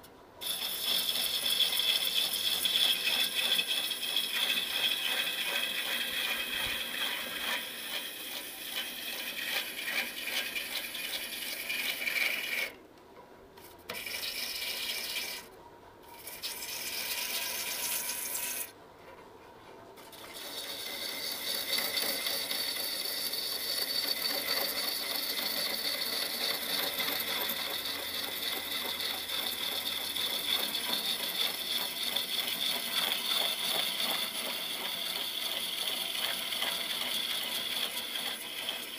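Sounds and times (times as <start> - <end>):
lathe tool shaving wood: 0.4 - 12.8, 20.1 - 38.9.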